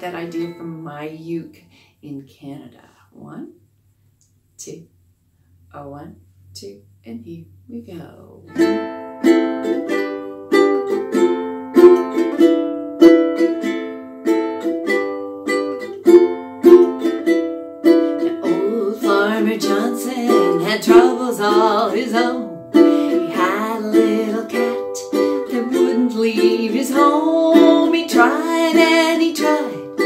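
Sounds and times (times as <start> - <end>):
ukulele strumming: 0.0 - 0.8, 8.4 - 30.0
woman singing: 18.2 - 30.0.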